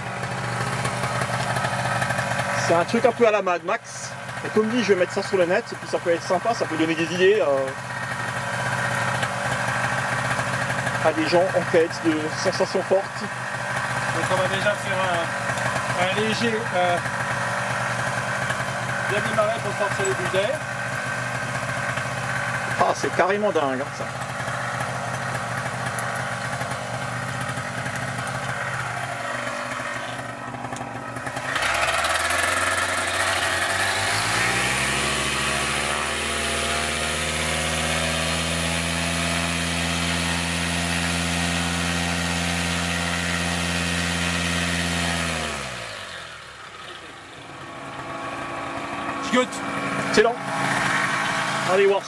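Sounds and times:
two-stroke engine revving: 0:00.0 - 0:52.0.

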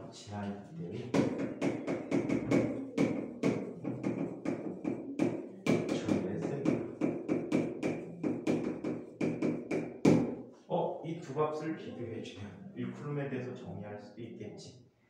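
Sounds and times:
chalk tapping on blackboard: 0:01.1 - 0:10.5.

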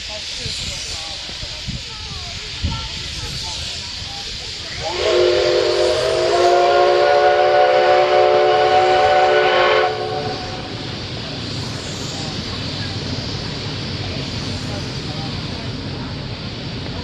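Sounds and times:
steam hissing: 0:00.0 - 0:17.0
steam whistle blast: 0:04.8 - 0:10.8.

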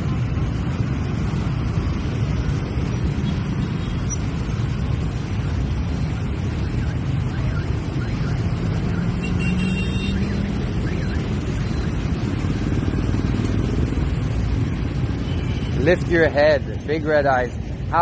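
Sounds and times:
rumble of small engines: 0:00.0 - 0:18.0.

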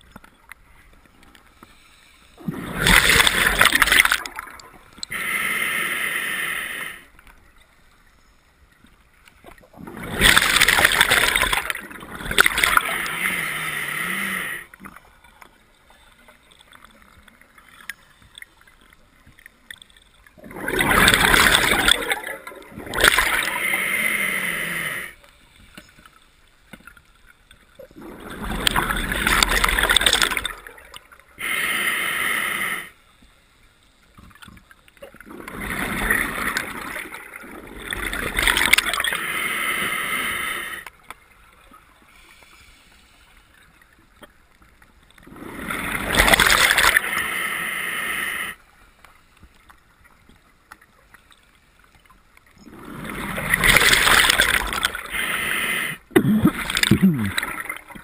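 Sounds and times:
regulator inhale hiss: 0:01.5 - 0:02.4, 0:05.0 - 0:07.2, 0:12.8 - 0:14.8, 0:23.4 - 0:25.4, 0:31.4 - 0:33.1, 0:39.1 - 0:40.9, 0:42.1 - 0:43.6, 0:46.9 - 0:48.7, 0:55.0 - 0:56.1.

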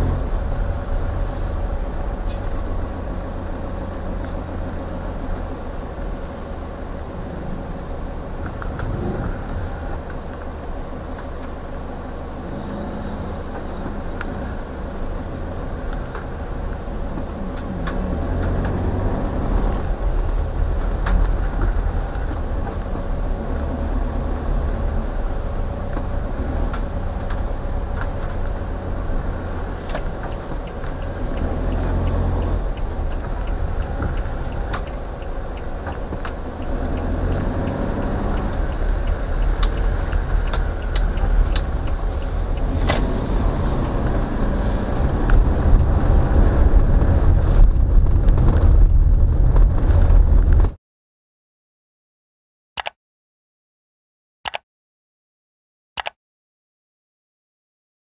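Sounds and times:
car engine and road rumble: 0:00.0 - 0:50.8
sharp clicks: 0:29.8 - 0:43.1.

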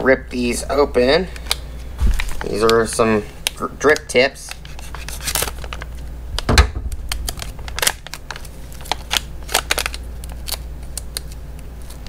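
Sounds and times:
plastic packets crinkling: 0:00.8 - 0:12.0
heavy thump: 0:06.4 - 0:07.2.

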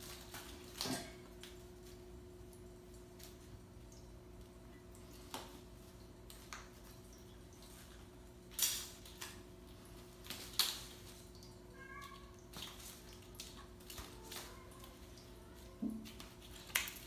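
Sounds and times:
paws tapping and scrabbling on floor: 0:09.1 - 0:17.0.

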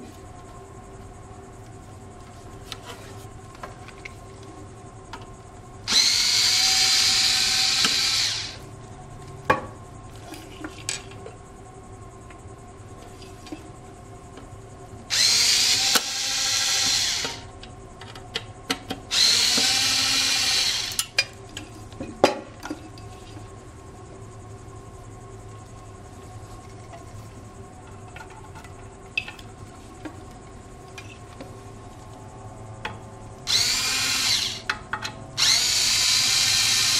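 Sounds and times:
cordless screwdriver whirring: 0:05.9 - 0:08.6, 0:15.1 - 0:17.4, 0:19.1 - 0:21.0, 0:33.5 - 0:34.6, 0:35.4 - 0:36.9.

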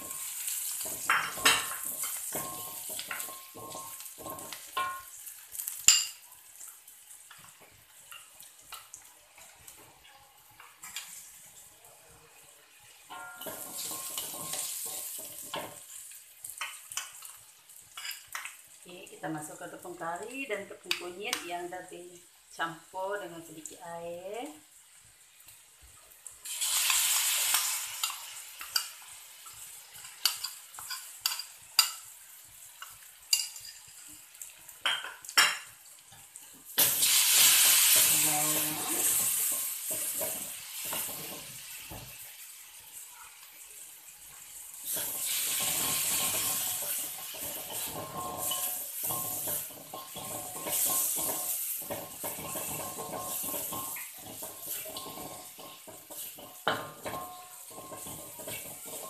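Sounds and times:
spatula scraping and knocking pan: 0:00.0 - 0:06.1, 0:13.1 - 0:16.0, 0:37.4 - 0:42.2, 0:44.9 - 0:59.0
paste sizzling in hot oil: 0:00.0 - 0:21.6, 0:22.3 - 0:59.0.

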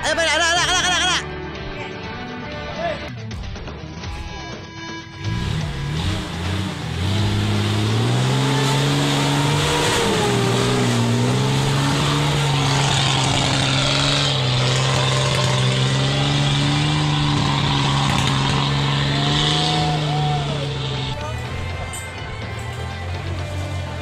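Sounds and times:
off-road vehicle engine revving: 0:05.2 - 0:24.0.

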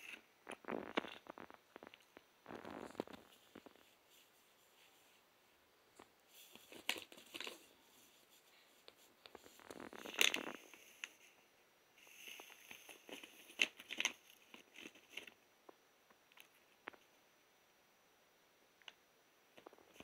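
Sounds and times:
plastic bag crinkling: 0:06.4 - 0:07.7, 0:09.3 - 0:11.2, 0:12.0 - 0:15.4.

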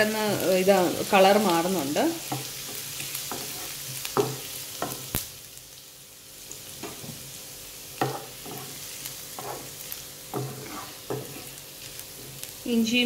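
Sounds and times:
garlic sizzling in oil: 0:00.0 - 0:13.0
spatula scraping pan: 0:02.2 - 0:05.1, 0:08.0 - 0:12.5.

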